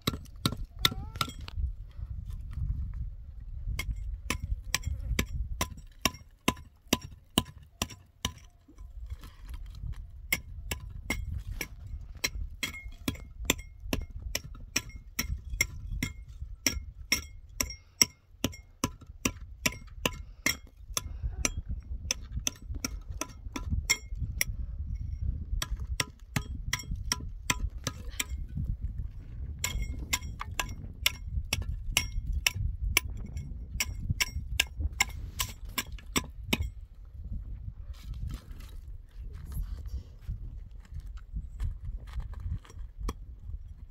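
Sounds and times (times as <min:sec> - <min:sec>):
hard object tapping concrete block: 0:00.0 - 0:01.6, 0:03.7 - 0:08.9, 0:10.3 - 0:24.6, 0:25.5 - 0:28.7, 0:29.6 - 0:36.8.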